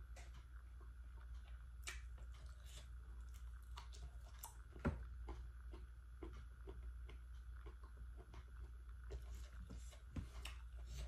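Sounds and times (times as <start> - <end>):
steady low hum: 0.0 - 11.0
person chewing: 0.1 - 11.0
wet mouth clicks and smacks: 1.4 - 4.6.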